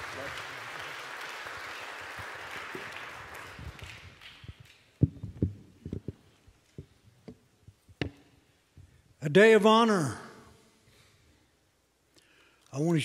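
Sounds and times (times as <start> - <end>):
congregation applauding: 0.0 - 5.0
microphone handling thumps: 5.0 - 8.2.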